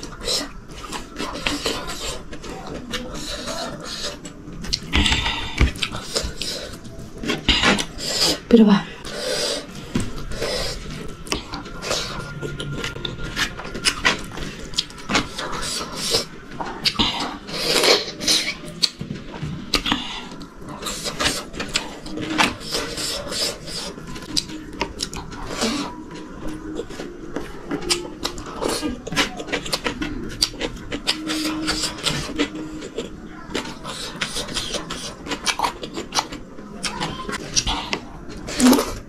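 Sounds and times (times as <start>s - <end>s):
chewing: 0.0s - 39.0s.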